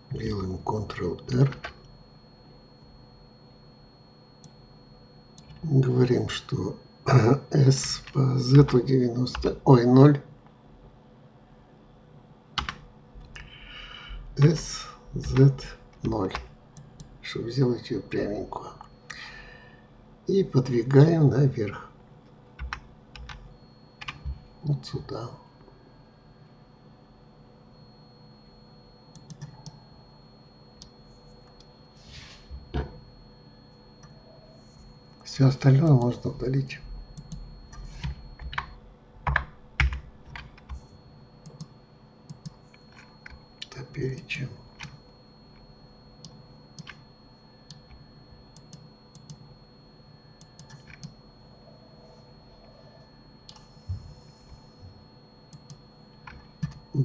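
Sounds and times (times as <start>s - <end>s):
faint steady hum: 0.0s - 57.0s
keyboard and mouse clicks: 37.2s - 40.8s, 55.5s - 56.8s.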